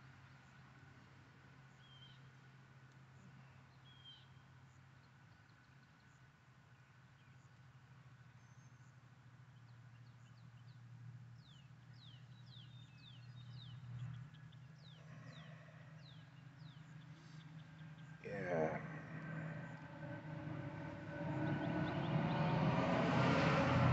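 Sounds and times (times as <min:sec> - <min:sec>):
faint low hum: 0:00.0 - 0:23.9
bird chirping: 0:11.4 - 0:23.7.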